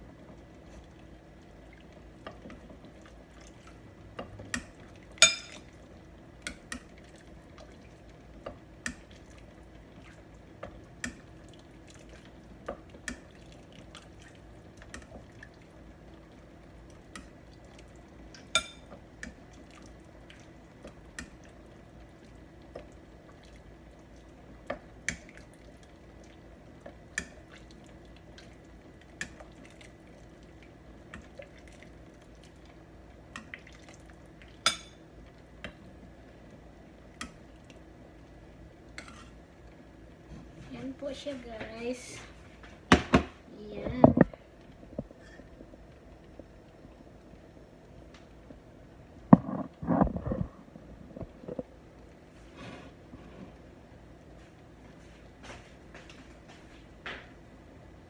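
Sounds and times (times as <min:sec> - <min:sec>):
steady low hum: 0:00.0 - 0:58.0
liquid dripping and splashing: 0:27.1 - 0:34.9.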